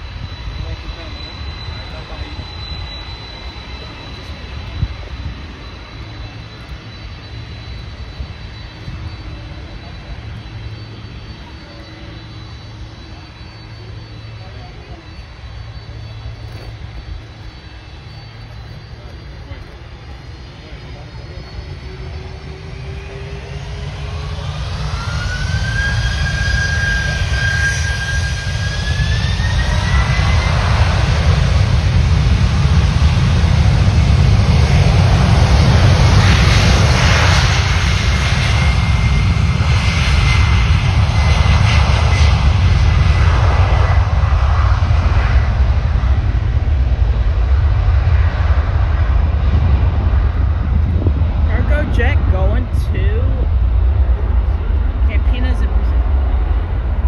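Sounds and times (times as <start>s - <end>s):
jet engines on takeoff roll: 0.0s - 57.0s.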